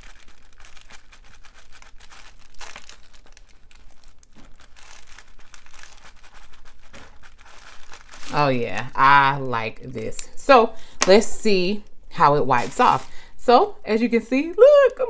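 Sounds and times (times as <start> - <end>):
tissue paper crinkling: 0.0 - 9.4, 12.6 - 13.2
marker scratching on plastic board: 6.1 - 7.5.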